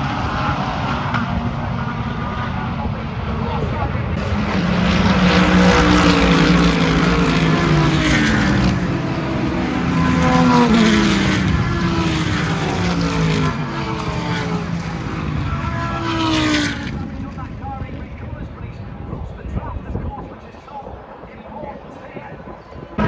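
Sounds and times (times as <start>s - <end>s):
race cars passing by: 0.0s - 19.4s.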